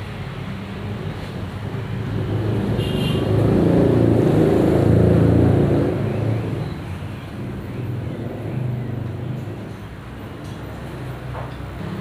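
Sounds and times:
vehicle engine passing by: 2.0s - 6.7s.

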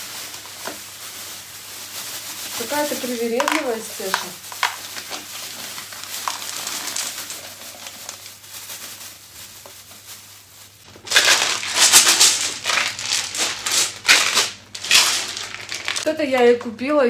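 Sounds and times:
plastic bag rustling: 0.0s - 16.1s
kibble rattling in plastic container: 2.2s - 10.0s, 10.9s - 16.1s.

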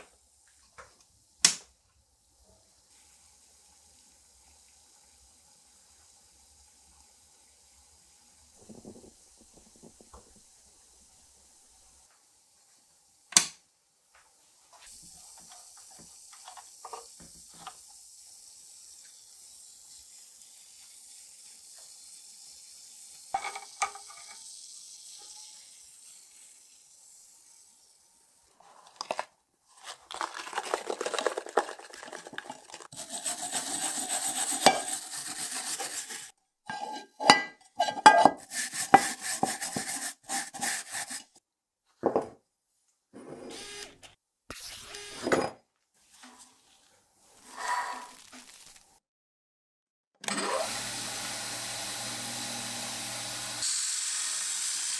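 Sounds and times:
electrolysis bubbles fizzing: 2.9s - 11.5s, 29.8s - 34.4s, 47.9s - 49.0s
brush scrubbing metal: 30.6s - 41.4s.

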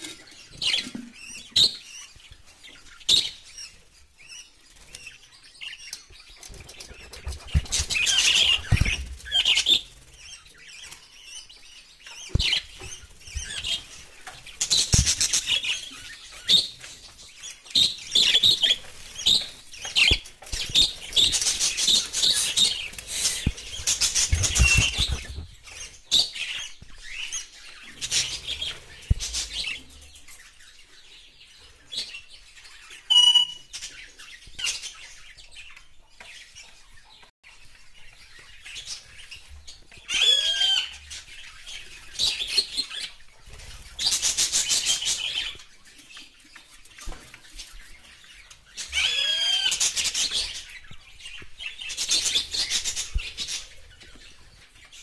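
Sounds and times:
budgerigars chirping and chattering: 0.0s - 55.0s
bird whistle: 33.1s - 33.7s.

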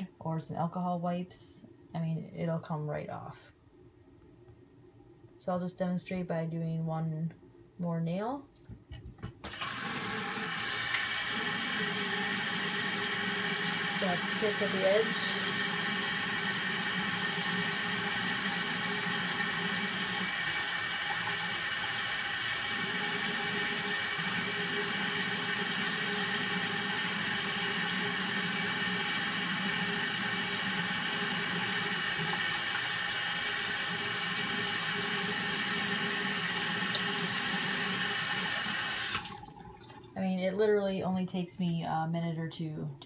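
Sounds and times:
faucet water splashing into sink: 9.5s - 40.1s.

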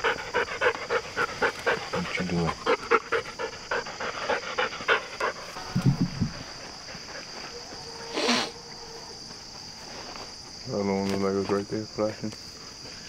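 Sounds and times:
dog panting: 0.0s - 5.6s, 6.2s - 7.6s
high insect drone: 0.0s - 13.0s.

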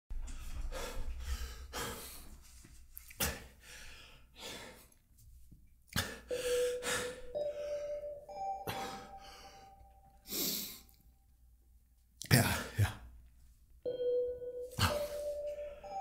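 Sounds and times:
man breathing heavily: 0.2s - 5.0s, 6.0s - 7.8s
music with held note: 6.3s - 10.2s, 13.9s - 16.0s.

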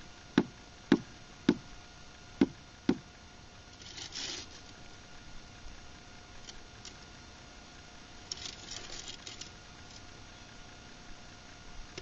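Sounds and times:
taps on concrete block: 0.4s - 1.6s
short scraping rustle: 3.7s - 4.8s, 8.2s - 10.1s.

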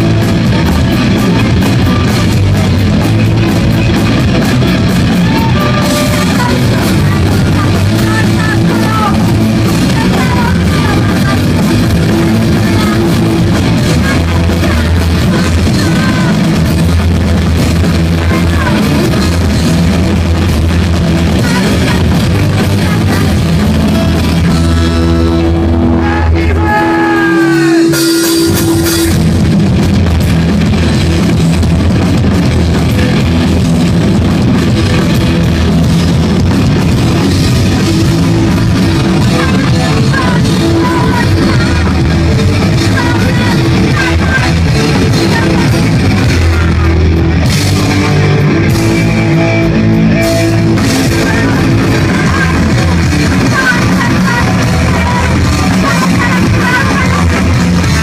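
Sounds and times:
live rock band: 0.0s - 58.0s
held guitar note sliding pitch: 23.6s - 29.6s.

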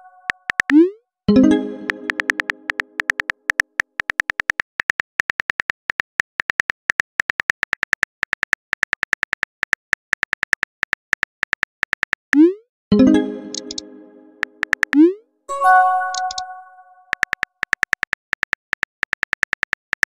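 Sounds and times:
phone keyboard typing clicks: 0.2s - 0.8s, 1.8s - 9.5s, 13.4s - 15.0s, 15.9s - 20.0s
message chime: 1.3s - 3.0s, 12.9s - 14.6s, 15.5s - 17.1s.

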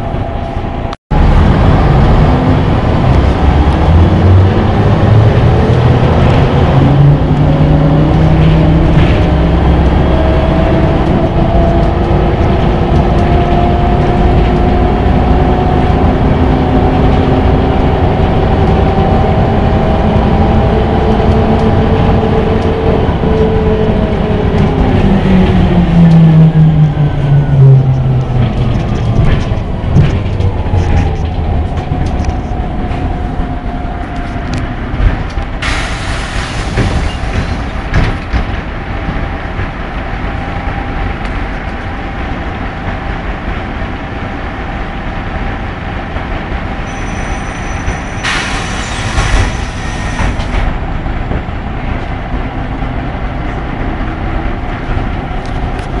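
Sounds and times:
bus engine winding down: 0.0s - 56.0s
compressed air hiss: 35.6s - 37.0s.

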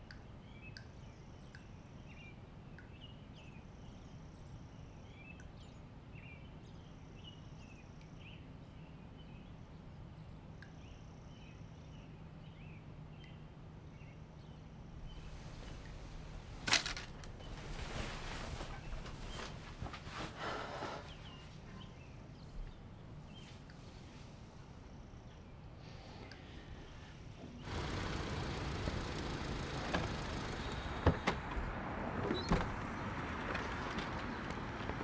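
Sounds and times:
rustle of jeans: 15.0s - 21.8s.

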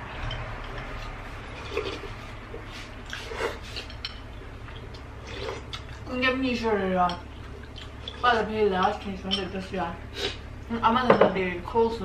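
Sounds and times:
steady low hum: 0.0s - 12.0s
wet chewing: 0.2s - 6.1s, 7.1s - 8.5s.

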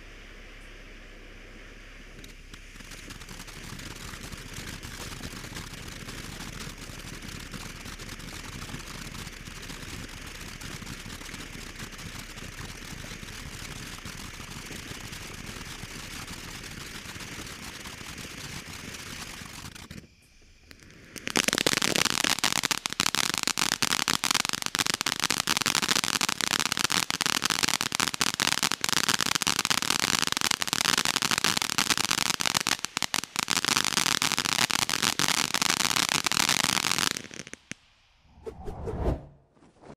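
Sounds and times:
firework fountain hissing crackle: 0.0s - 38.2s
rapid dense firework crackling: 1.4s - 37.9s.

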